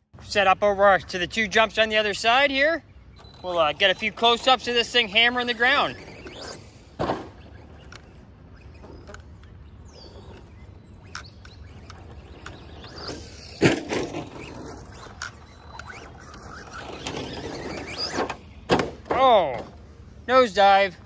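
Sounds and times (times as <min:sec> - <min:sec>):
distant electric rc car running: 0:03.1 - 0:19.0
loud thump: 0:07.0 - 0:07.4, 0:18.7 - 0:19.2.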